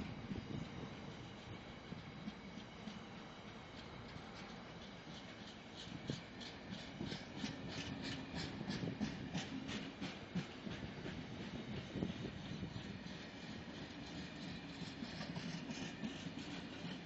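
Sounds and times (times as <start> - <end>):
train wheels rumbling on rails: 0.0 - 17.0
rhythmic wheel clicks: 1.2 - 12.1.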